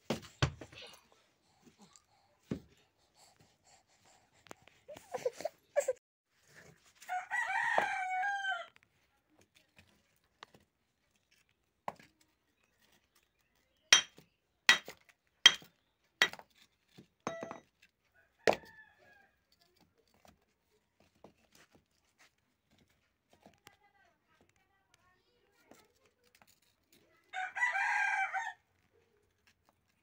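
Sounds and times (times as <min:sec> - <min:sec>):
rooster crowing: 0:07.1 - 0:08.7, 0:27.4 - 0:28.6
hammer striking stones: 0:13.9 - 0:16.4, 0:17.3 - 0:17.6.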